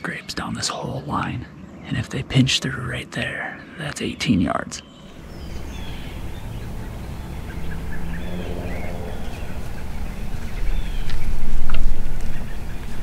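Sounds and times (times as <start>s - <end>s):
faint bird chirps: 4.0s - 13.0s
low rumble: 5.0s - 13.0s.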